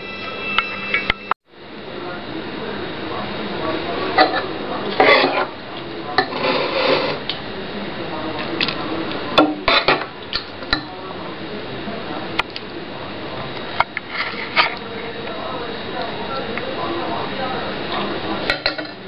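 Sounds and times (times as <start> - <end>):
spoon scraping a bowl: 4.9 - 5.5, 6.2 - 7.2, 14.0 - 14.8.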